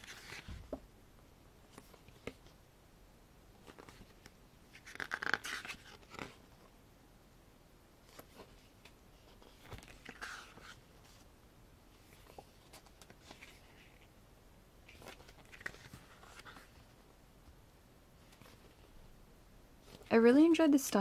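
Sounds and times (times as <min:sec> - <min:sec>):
pages being turned: 0:00.0 - 0:00.8, 0:01.7 - 0:02.6, 0:03.6 - 0:06.7, 0:08.0 - 0:11.3, 0:11.9 - 0:14.1, 0:14.8 - 0:17.0, 0:18.2 - 0:18.9.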